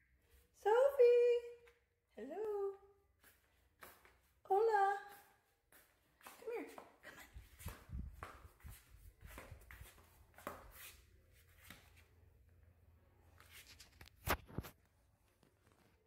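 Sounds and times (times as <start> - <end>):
puppy paws clicking on tile floor: 1.4 - 12.6.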